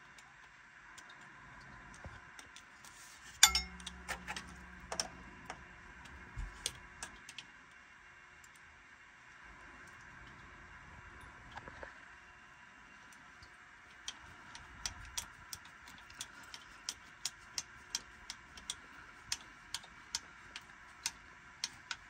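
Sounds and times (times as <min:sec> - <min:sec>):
low hum: 0:02.9 - 0:08.6
sharp metallic clink: 0:03.4 - 0:03.9
tools clicking and knocking: 0:03.4 - 0:05.1.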